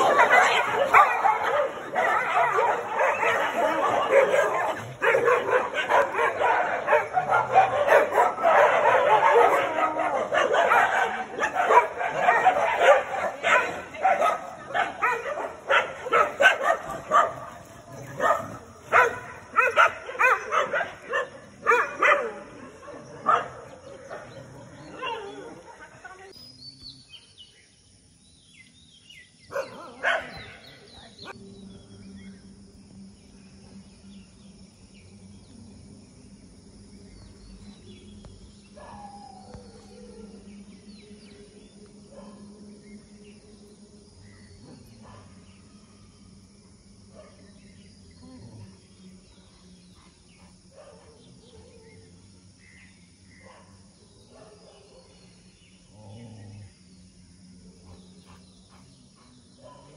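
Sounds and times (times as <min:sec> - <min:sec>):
dogs barking and yelping: 0:00.0 - 0:25.9, 0:29.5 - 0:30.6.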